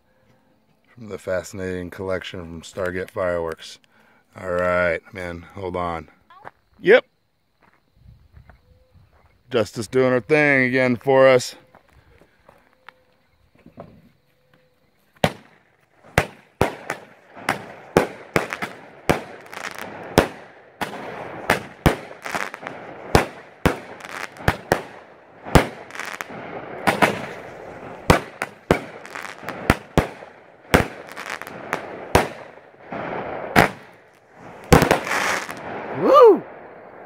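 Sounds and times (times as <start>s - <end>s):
firework bangs: 15.2s - 37.0s
firework crackle: 15.2s - 37.0s.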